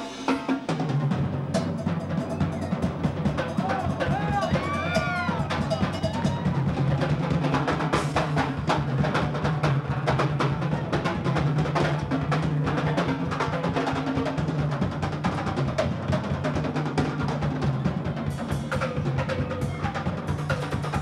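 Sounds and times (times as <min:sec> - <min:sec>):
drum kit playing: 0:00.0 - 0:21.0
hand percussion drums: 0:00.0 - 0:21.0.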